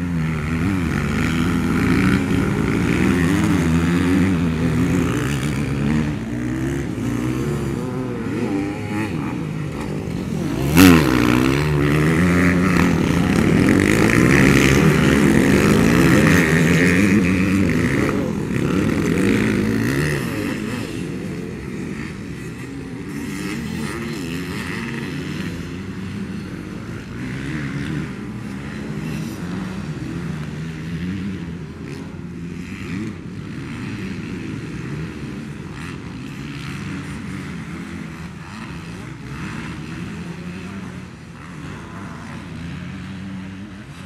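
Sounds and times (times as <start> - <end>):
motocross bike engines revving: 0.0 - 44.0.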